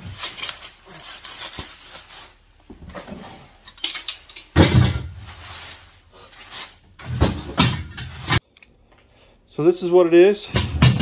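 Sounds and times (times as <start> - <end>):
plastic wrapping rustling: 0.0 - 7.0
metal parts clinking: 3.6 - 5.0.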